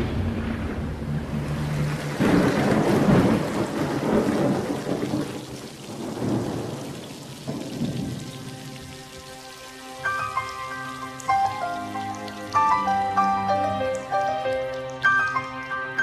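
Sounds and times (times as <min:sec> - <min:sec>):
rolling thunder: 0:00.0 - 0:08.2
steady rain: 0:00.0 - 0:16.0.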